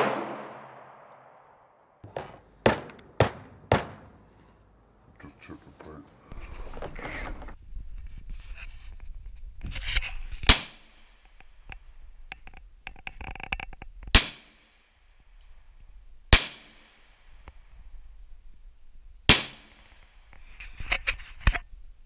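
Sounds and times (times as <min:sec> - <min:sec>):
pistol shots: 0:00.0 - 0:01.8, 0:19.3 - 0:20.0.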